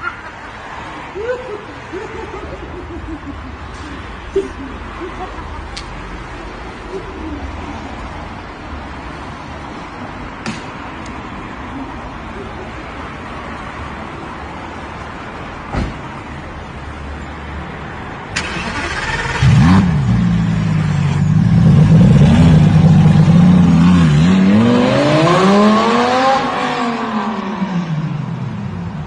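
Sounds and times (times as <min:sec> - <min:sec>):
sports car engine starting and revving: 0:18.4 - 0:28.0.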